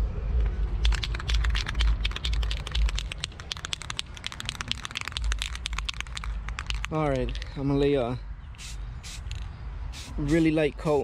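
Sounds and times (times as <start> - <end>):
spray can rattling: 0.8 - 7.5, 8.6 - 10.5.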